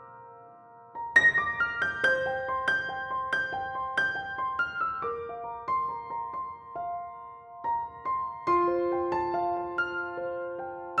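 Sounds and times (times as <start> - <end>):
slow piano music: 0.0 - 11.0.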